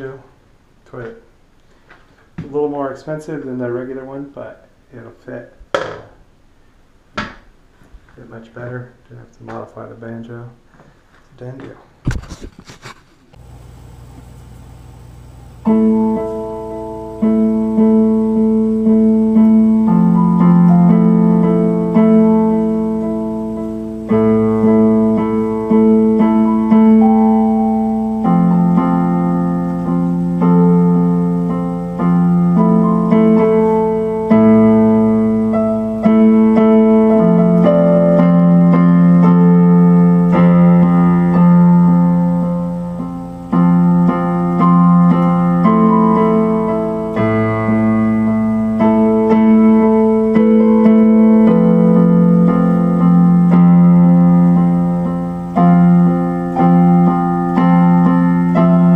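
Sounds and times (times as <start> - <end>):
electric piano chords: 13.4 - 58.9.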